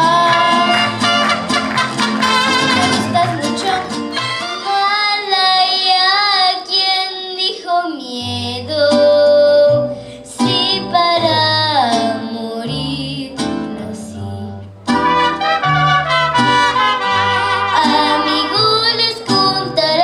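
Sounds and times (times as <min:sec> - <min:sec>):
girl singing: 0:00.0 - 0:00.7, 0:02.7 - 0:14.6, 0:17.4 - 0:20.0
mariachi band playing: 0:00.0 - 0:05.9, 0:09.0 - 0:20.0.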